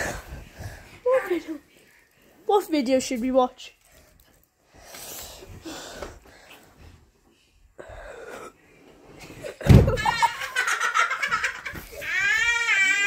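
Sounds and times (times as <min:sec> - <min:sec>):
loud thump: 0:09.6 - 0:10.1
child wailing: 0:12.0 - 0:13.0.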